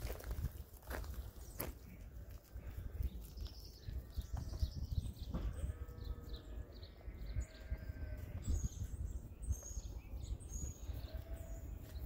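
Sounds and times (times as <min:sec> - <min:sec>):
lamb bleating: 0:05.5 - 0:08.6, 0:11.0 - 0:11.6.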